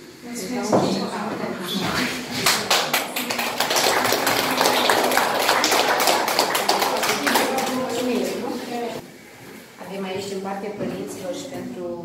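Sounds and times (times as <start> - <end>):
children applauding: 2.4 - 9.0.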